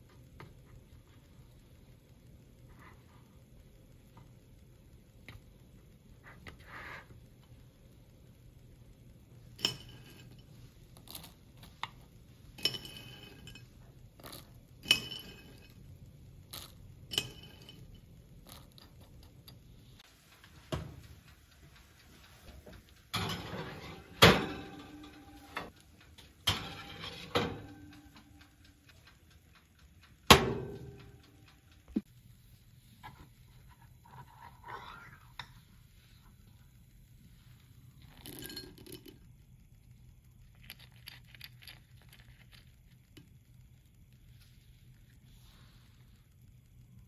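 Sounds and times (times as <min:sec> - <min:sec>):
metal pans scraping on racks: 0:23.2 - 0:25.7, 0:26.5 - 0:27.8.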